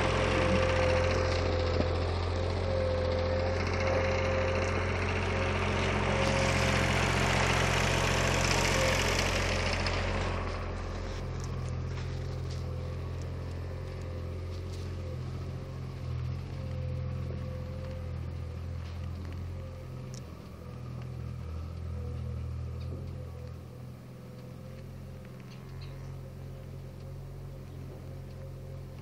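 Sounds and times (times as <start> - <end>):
faint steady whine: 0.0 - 29.0
loader engine drone: 0.0 - 29.0.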